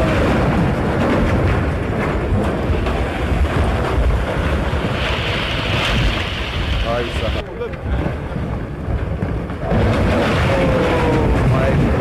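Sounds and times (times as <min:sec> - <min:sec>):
landslide roar: 0:00.0 - 0:12.0
rock cracks: 0:07.7 - 0:12.0.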